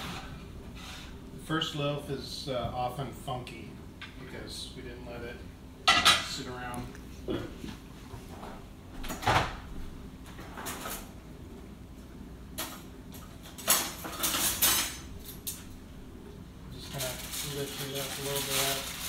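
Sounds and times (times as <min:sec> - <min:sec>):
cutlery clattering in drawer: 0:12.6 - 0:15.6.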